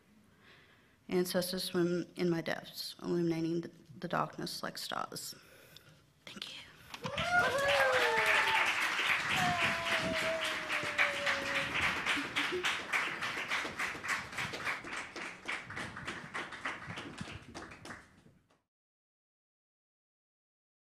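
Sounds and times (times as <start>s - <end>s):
audience applauding: 7.0s - 18.2s.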